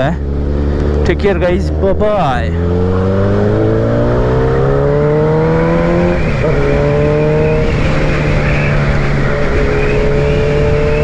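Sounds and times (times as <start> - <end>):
motorcycle engine revving: 0.0 - 11.0
wind noise: 2.6 - 11.0.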